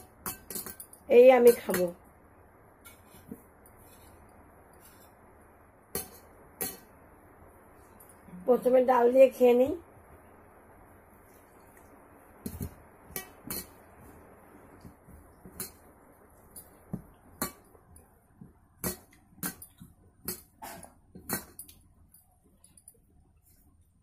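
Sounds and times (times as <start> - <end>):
steel tableware clinking: 0.0 - 1.9, 6.0 - 6.9, 12.5 - 13.9.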